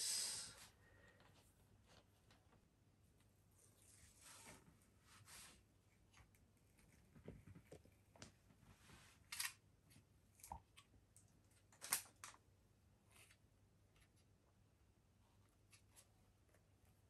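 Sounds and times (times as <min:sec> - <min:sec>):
short rustling scrapes: 0:03.8 - 0:05.7.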